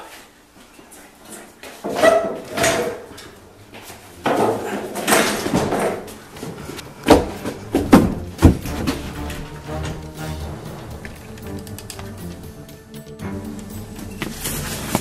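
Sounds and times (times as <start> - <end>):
sharp thumps: 7.0 - 12.4
shuffling rustling movement: 14.2 - 15.0.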